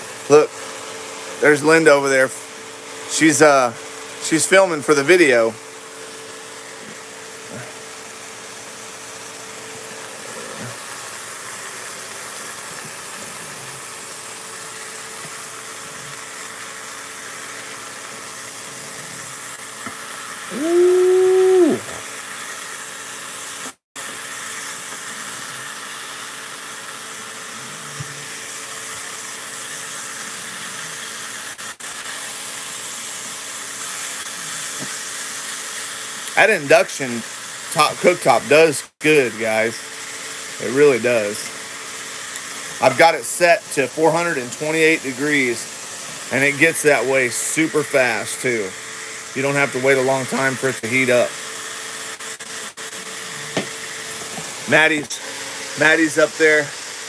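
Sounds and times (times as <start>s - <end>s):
meat sizzling in skillet: 5.2s - 38.4s, 39.3s - 52.1s, 52.9s - 57.0s
held tone: 20.5s - 22.0s.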